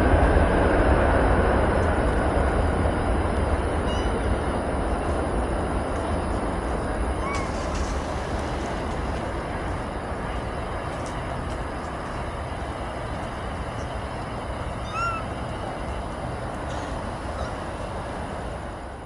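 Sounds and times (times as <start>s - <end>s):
jet aircraft rumble: 0.0s - 19.0s
rising and falling animal call: 14.8s - 15.4s, 17.3s - 17.7s.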